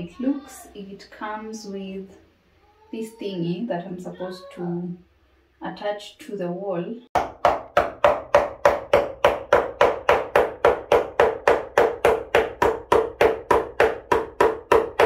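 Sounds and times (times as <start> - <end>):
hammer hitting nail: 7.2 - 15.0.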